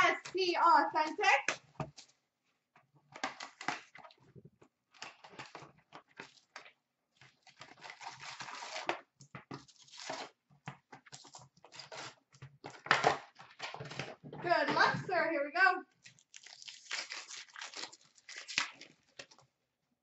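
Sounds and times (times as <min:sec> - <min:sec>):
packaging tearing and crinkling: 0:07.2 - 0:09.0, 0:09.6 - 0:10.4, 0:11.1 - 0:12.2, 0:16.0 - 0:19.4.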